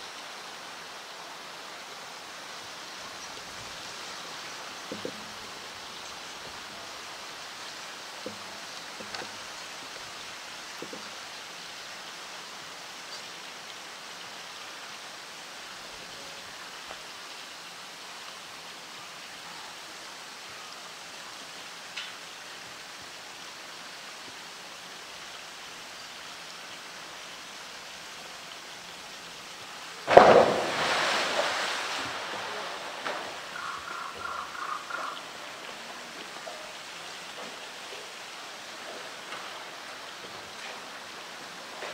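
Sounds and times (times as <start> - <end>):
faint steady hiss: 0.0 - 41.9
loud splash into pool: 30.0 - 33.6
water sloshing and spattering: 30.0 - 41.9.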